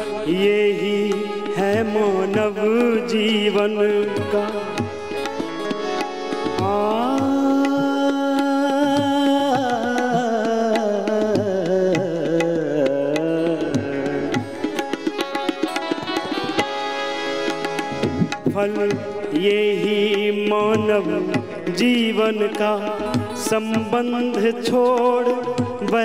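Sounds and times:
harmonium: 0.0 - 26.0
tabla: 0.0 - 26.0.

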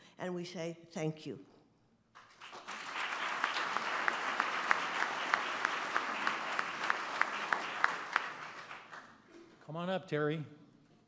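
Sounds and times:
audience applauding: 2.2 - 9.2
person clapping sharply: 2.2 - 9.2.

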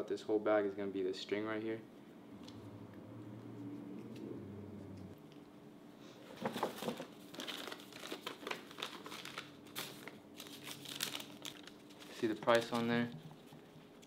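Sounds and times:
paper crinkling and rustling: 6.4 - 13.9.

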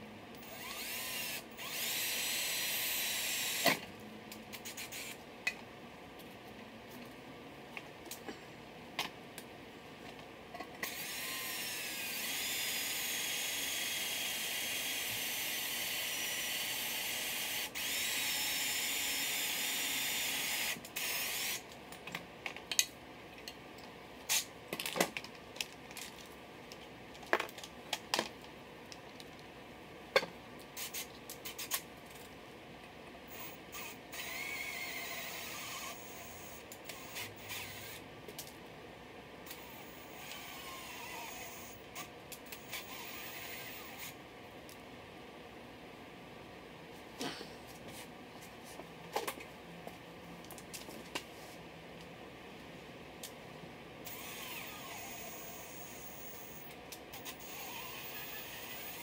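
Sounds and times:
electric drill drilling into metal: 0.4 - 3.8, 4.6 - 5.2, 10.8 - 21.6, 33.3 - 38.0, 39.5 - 44.2, 54.0 - 59.0
drill bits clicking and tapping: 39.5 - 44.1, 54.1 - 59.0.

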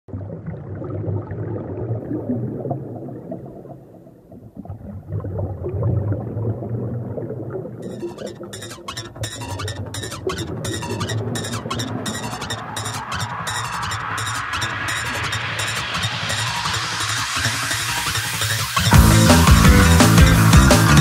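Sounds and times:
sharp hits: 12.1 - 21.0.

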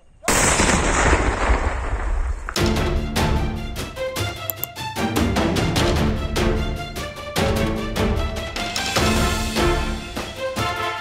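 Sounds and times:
explosion rumble: 0.3 - 2.7
music: 2.6 - 11.0.

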